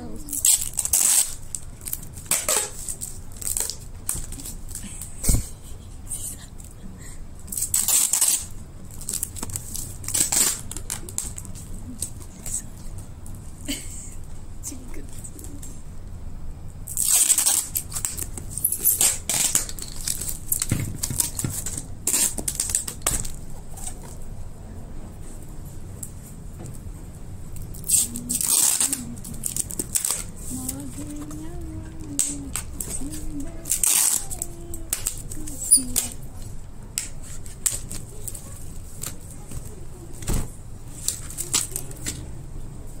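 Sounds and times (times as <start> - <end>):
plastic-wrapped box crinkling: 0.3 - 4.8, 7.5 - 12.6, 16.9 - 24.2, 27.6 - 36.5
plastic packaging crackling and ripping: 0.3 - 5.1, 7.5 - 12.9, 16.9 - 24.2, 27.5 - 40.2, 40.9 - 42.2.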